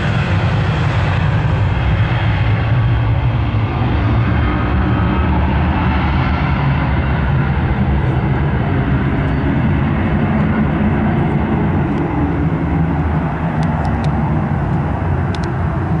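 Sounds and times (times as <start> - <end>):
jet taking off: 0.0 - 16.0
faint clicks: 13.6 - 15.6.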